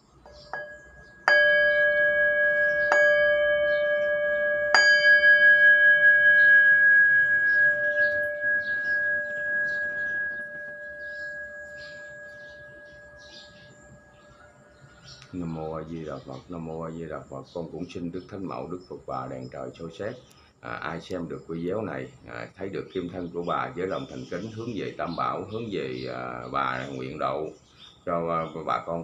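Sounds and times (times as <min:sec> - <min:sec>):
brass bowl bell struck: 0:00.5 - 0:14.8.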